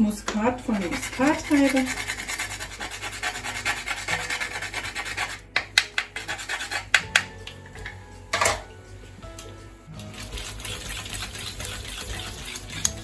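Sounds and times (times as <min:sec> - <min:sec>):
nutmeg rasping on grater: 0:00.6 - 0:05.4, 0:06.2 - 0:06.9, 0:10.0 - 0:13.0.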